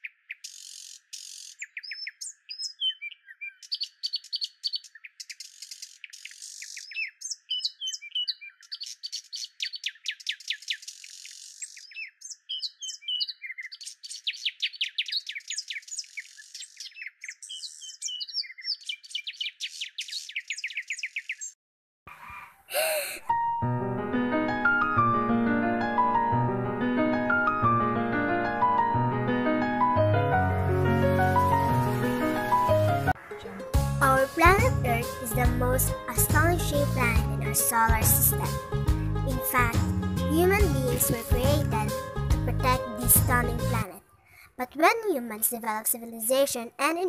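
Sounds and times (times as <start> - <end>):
birds chirping and trilling: 0.0 - 21.6, 30.6 - 39.8.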